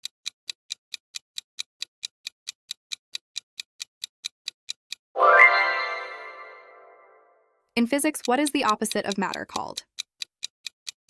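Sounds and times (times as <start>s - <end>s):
clock timer ticking: 0.0s - 5.1s, 7.8s - 11.0s
ringing chime: 5.2s - 7.2s.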